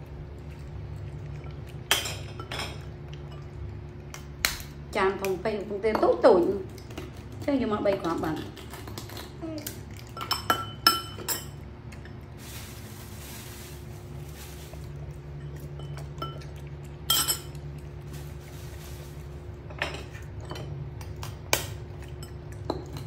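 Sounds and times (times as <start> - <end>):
steady low hum: 0.0 - 23.0
spoon clinking on ceramic bowl: 10.2 - 11.6, 15.4 - 17.6.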